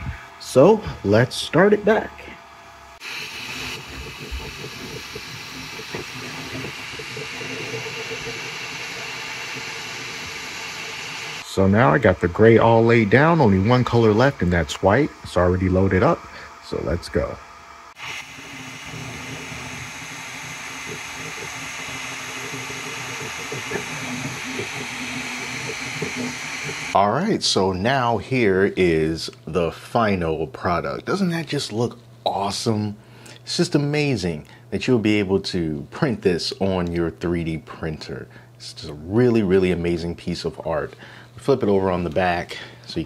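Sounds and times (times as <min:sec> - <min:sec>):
stepper motors humming: 0:00.0 - 0:27.0
cooling fans hissing: 0:00.0 - 0:43.0.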